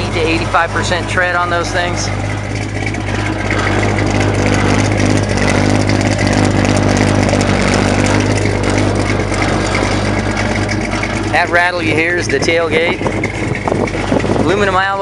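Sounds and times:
tailgate rattle: 0.0 - 15.0
vee eight engine idling: 0.0 - 15.0.

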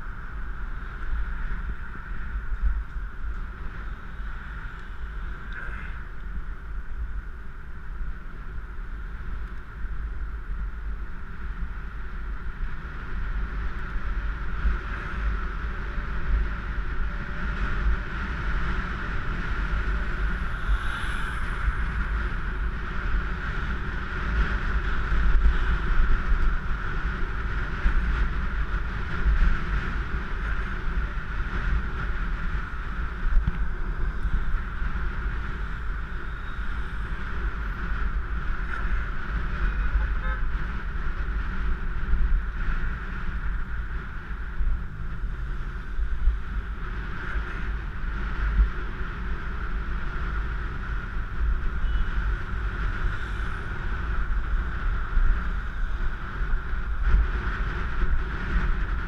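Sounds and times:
constant hum: 0.0 - 59.0
wind buffeting microphone: 0.0 - 59.0
high falling squeal: 20.2 - 22.8.

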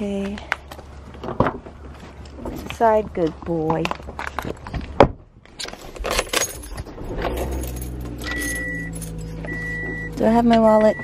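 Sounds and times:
keys jangling: 5.6 - 9.5
car engine starting and idling: 5.7 - 11.0
warning chime beeping: 8.2 - 11.0.

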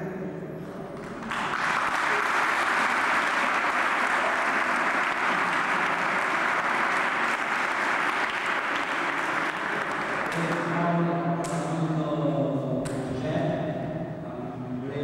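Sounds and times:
audience applause: 1.0 - 10.8.

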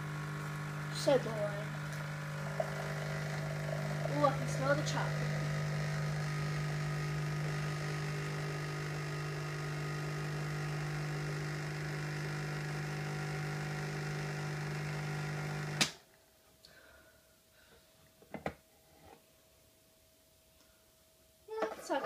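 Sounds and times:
coffee machine pump buzzing: 0.0 - 16.0.

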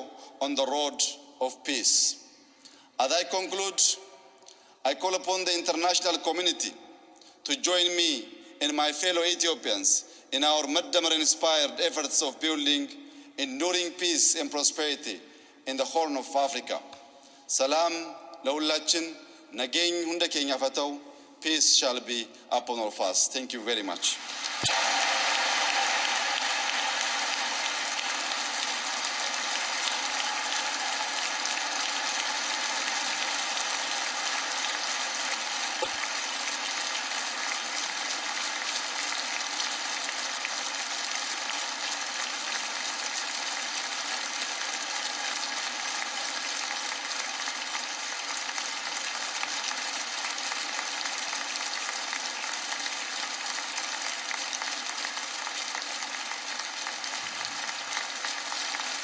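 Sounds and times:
audience applause: 24.1 - 59.0.

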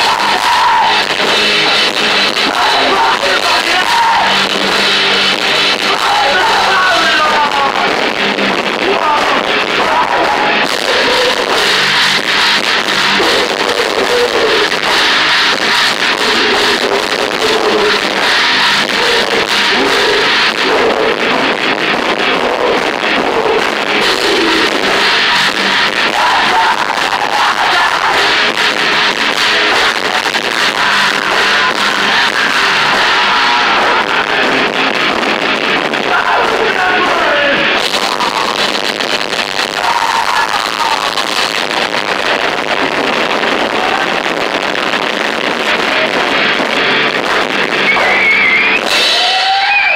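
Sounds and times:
person singing into microphone: 0.0 - 4.5, 5.7 - 8.0, 8.8 - 11.8, 25.9 - 28.8
electric guitar: 0.0 - 49.9
drum kit hits: 7.6 - 36.8, 44.4 - 49.6.

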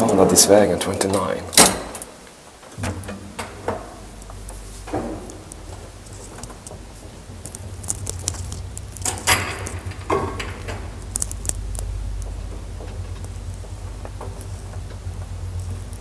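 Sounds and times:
elevator drive hum: 0.0 - 16.0
sharp clicks and clanks: 2.7 - 16.0.

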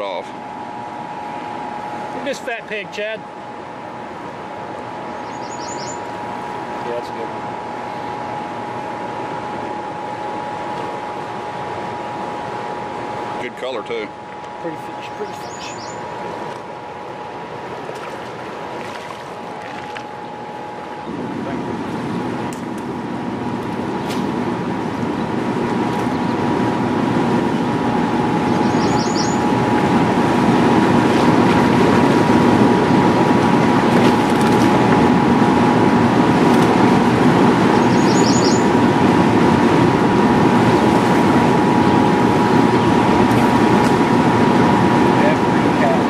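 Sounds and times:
faint steady hum: 0.0 - 46.0
fast river water rushing: 17.7 - 20.0.

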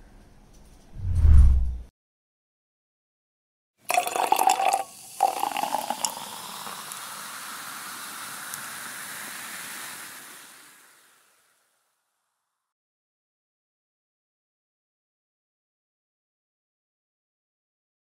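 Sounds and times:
drink splashing into cup: 3.9 - 7.0
foam fizzing: 4.0 - 11.7.

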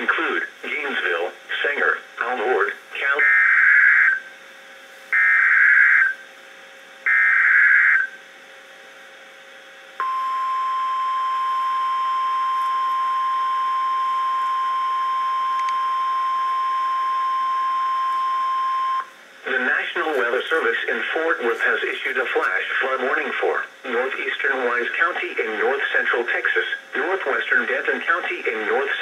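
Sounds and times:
steady warning alarm tone: 3.0 - 4.3, 5.1 - 6.3, 7.1 - 8.2, 10.0 - 19.2.

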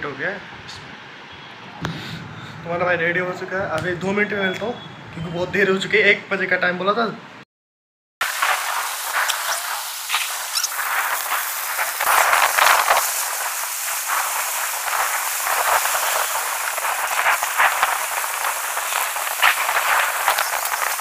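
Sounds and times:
heavy rain falling: 8.2 - 21.0.

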